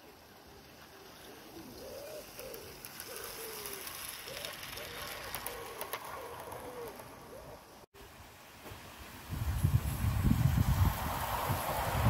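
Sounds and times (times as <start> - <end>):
pigeon cooing: 1.3 - 7.8
model train wheels clicking: 2.2 - 7.2.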